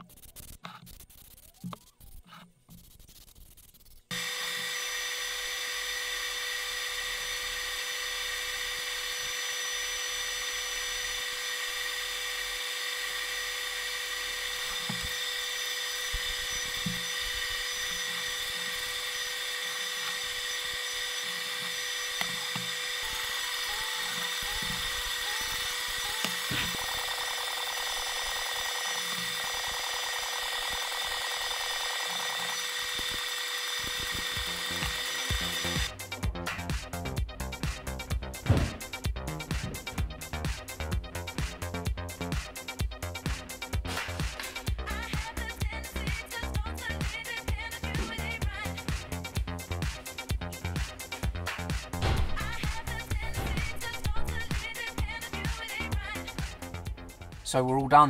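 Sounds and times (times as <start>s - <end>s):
machine whine with hiss: 4.1s - 35.9s.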